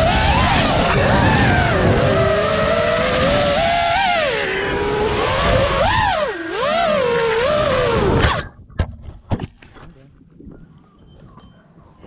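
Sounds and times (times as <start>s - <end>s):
drone motors whining: 0.0s - 8.5s.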